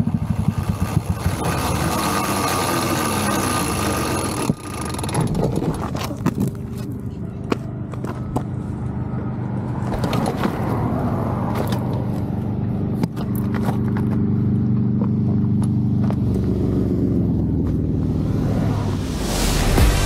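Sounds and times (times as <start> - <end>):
motorcycle engine idling: 0.0 - 8.3.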